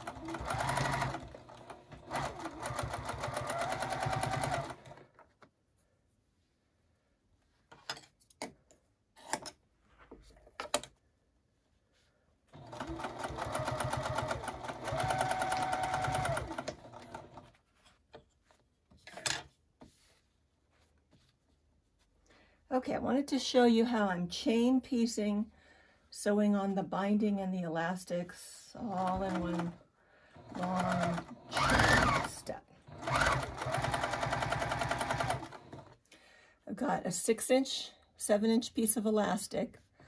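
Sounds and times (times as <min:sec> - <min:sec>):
sewing machine stitching: 0:00.0 - 0:05.2, 0:12.5 - 0:17.6, 0:28.8 - 0:29.8, 0:30.4 - 0:36.0.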